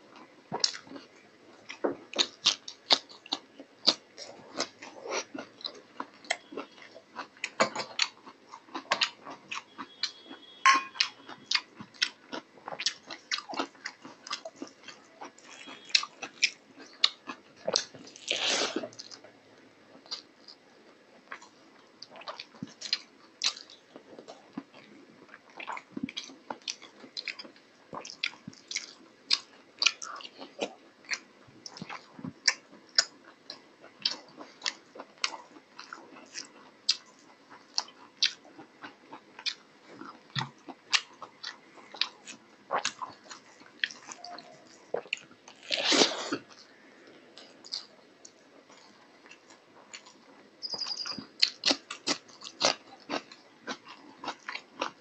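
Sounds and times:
chewing and lip-smacking: 0:00.2 - 0:19.3, 0:21.2 - 0:55.0.

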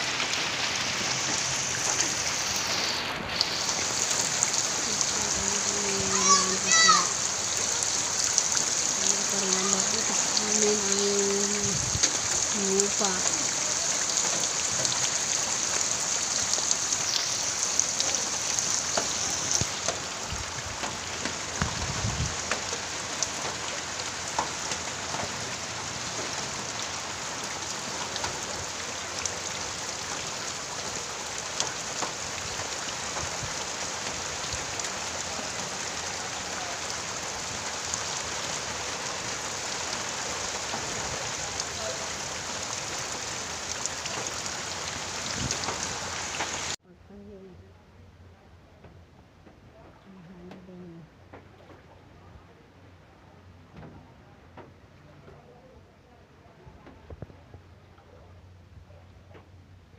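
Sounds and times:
heavy rain falling: 0:00.0 - 0:46.8.

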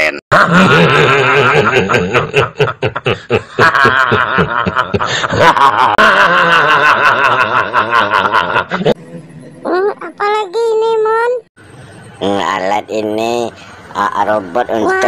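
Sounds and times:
man laughing loudly: 0:00.3 - 0:09.0.

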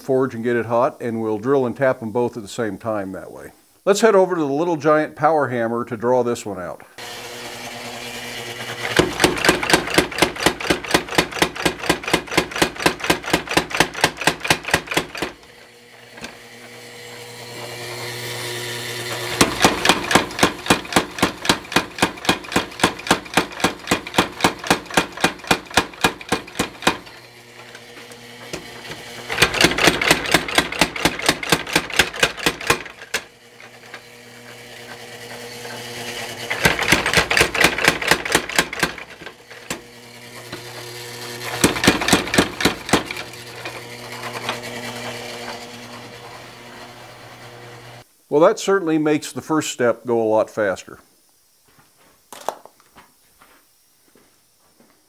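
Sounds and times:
power hammer pounding steel: 0:07.0 - 0:48.0
steady motor hum: 0:07.0 - 0:48.1.

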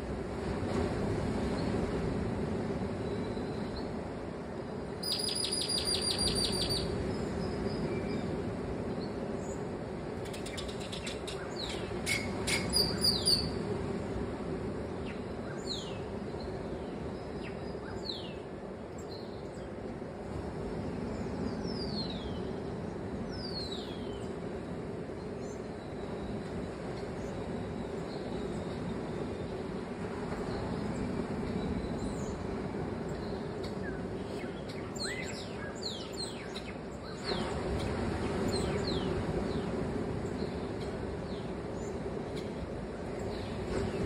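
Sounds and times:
bird trill: 0:05.0 - 0:06.9.

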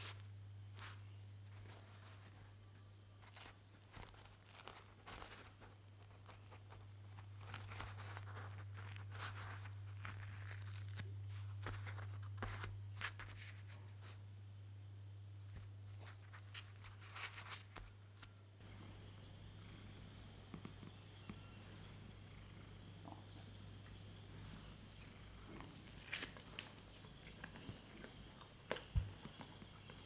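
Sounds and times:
steady low hum: 0:00.0 - 0:30.0
flatbread tearing by hand: 0:03.2 - 0:13.4.

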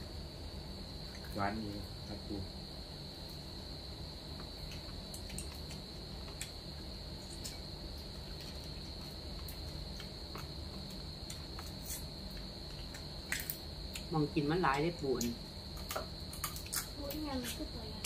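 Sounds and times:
insects trilling: 0:00.0 - 0:18.0.

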